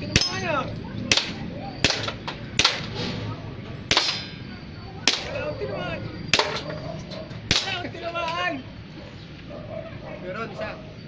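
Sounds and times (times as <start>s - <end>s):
airsoft pistol shots: 1.1s - 3.0s, 3.9s - 4.3s, 5.1s - 5.4s.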